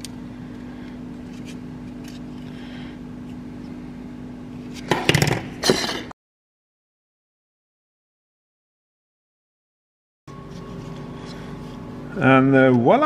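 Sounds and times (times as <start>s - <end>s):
steady low hum: 0.0s - 6.1s, 10.3s - 13.0s.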